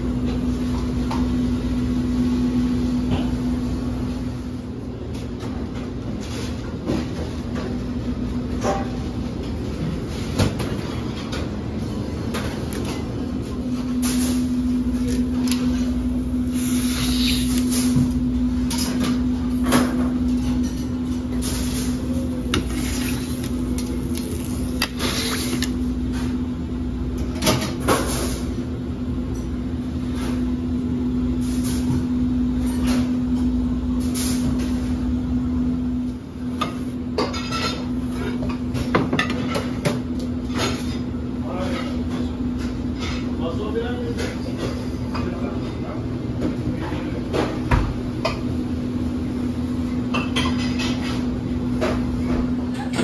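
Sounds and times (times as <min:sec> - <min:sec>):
droning hum: 0:00.0 - 0:38.9
kitchen knocks and clatters: 0:50.1 - 0:53.0.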